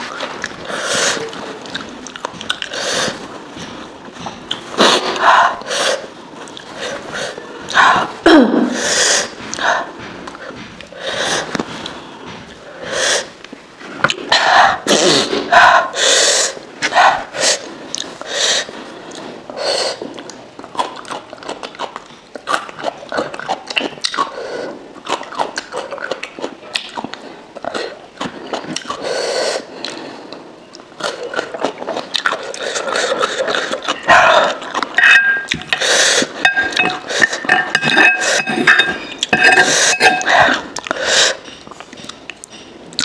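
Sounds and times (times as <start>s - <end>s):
chewing and lip smacking: 0.1s - 3.2s, 20.1s - 24.4s, 25.0s - 29.0s, 30.7s - 43.0s
sharp sniffs and breaths: 0.6s - 1.6s, 4.7s - 20.2s, 27.2s - 31.5s, 32.4s - 34.6s, 35.7s - 42.7s.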